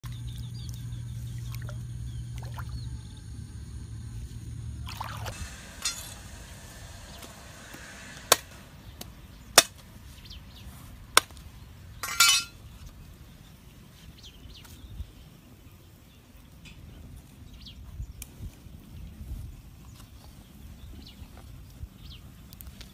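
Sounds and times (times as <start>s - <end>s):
knife blade clinking on fish: 12.0s - 12.6s
knife scraping concrete: 12.0s - 12.6s.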